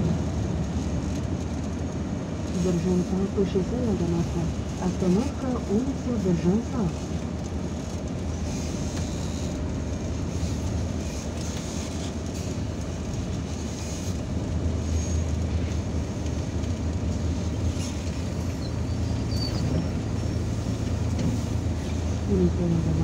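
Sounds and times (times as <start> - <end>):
bus engine droning: 0.0 - 23.0.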